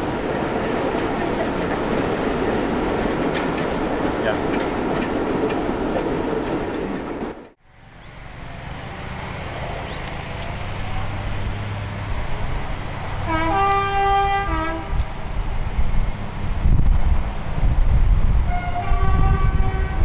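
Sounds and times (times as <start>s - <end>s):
diesel locomotive engine rumble: 0.0s - 20.0s
two-tone train horn: 13.2s - 15.0s, 18.4s - 20.0s.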